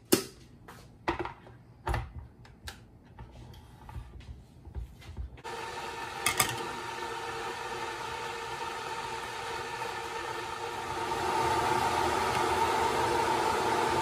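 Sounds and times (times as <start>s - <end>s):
kettle boiling hiss: 5.4s - 14.0s.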